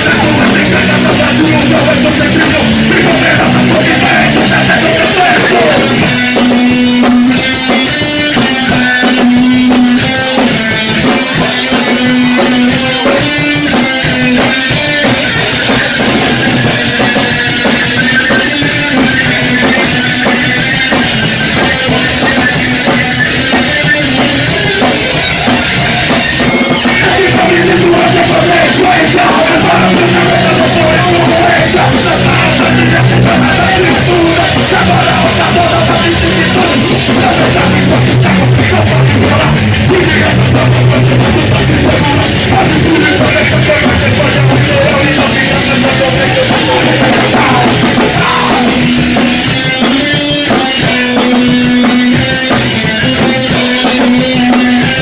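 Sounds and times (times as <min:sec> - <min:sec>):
person singing: 0:00.0 - 0:07.2, 0:24.8 - 0:51.4
distorted electric guitar: 0:00.0 - 0:55.0
drum kit beat: 0:00.0 - 0:55.0
punk rock band playing: 0:00.0 - 0:55.0.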